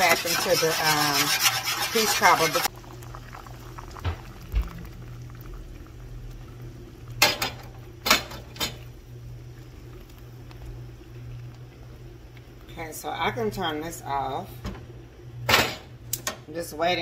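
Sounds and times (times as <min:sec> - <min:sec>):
filling bubbling in a skillet: 0:00.0 - 0:08.0, 0:08.8 - 0:12.9
steady low hum: 0:00.0 - 0:17.0.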